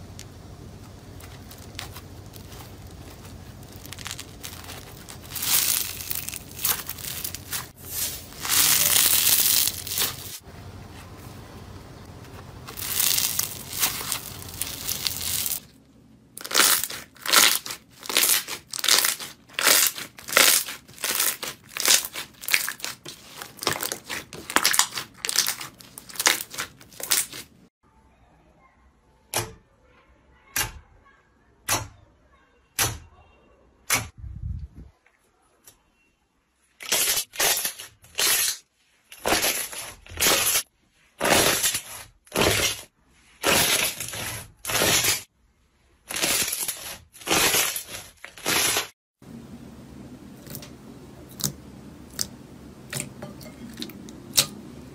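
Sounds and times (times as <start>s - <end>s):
foam slime crackling: 0.0s - 11.4s, 12.2s - 15.7s, 16.4s - 27.7s, 46.1s - 49.4s
slime squishing: 0.2s - 11.2s, 12.2s - 15.7s, 16.4s - 27.7s, 50.2s - 54.6s
slime popping: 1.2s - 7.7s, 12.7s - 15.6s, 16.4s - 27.4s.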